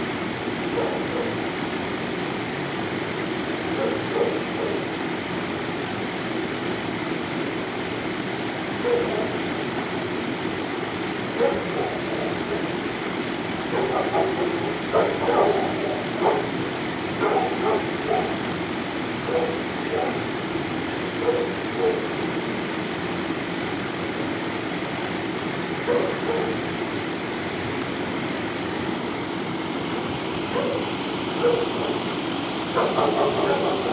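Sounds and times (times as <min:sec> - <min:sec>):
ventilation rushing noise: 0:00.0 - 0:33.9
distant dog yelps: 0:00.7 - 0:01.4, 0:03.8 - 0:05.0, 0:08.8 - 0:09.4, 0:11.4 - 0:12.4, 0:13.7 - 0:16.6, 0:17.2 - 0:18.5, 0:19.2 - 0:20.3, 0:21.2 - 0:22.2, 0:25.8 - 0:26.6, 0:30.5 - 0:32.1, 0:32.8 - 0:33.9.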